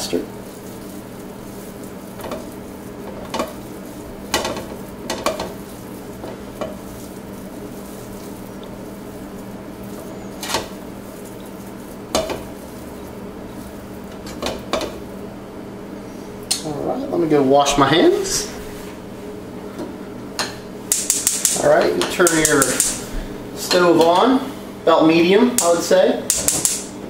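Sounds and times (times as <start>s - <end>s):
raw meat squishing by hand: 0.2s - 15.1s
taps against pan: 20.4s - 23.0s, 26.3s - 26.8s.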